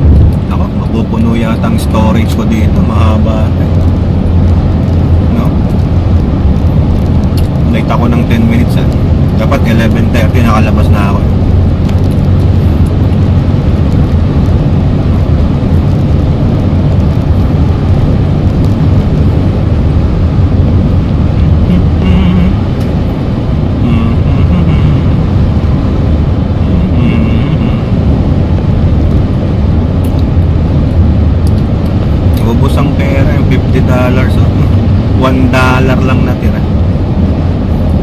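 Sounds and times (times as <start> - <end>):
car tyre and engine drone: 0.0 - 38.0.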